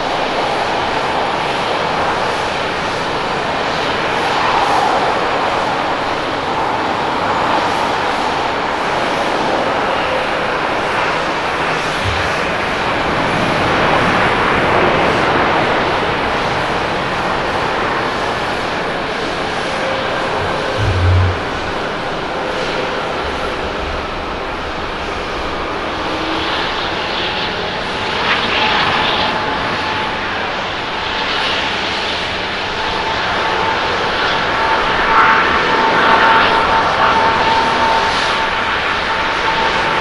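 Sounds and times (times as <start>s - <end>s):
jet airliner landing: 0.0s - 40.0s.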